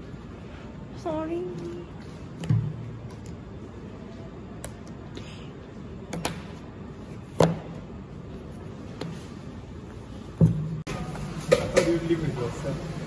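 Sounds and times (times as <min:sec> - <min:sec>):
room noise: 0:00.0 - 0:13.0.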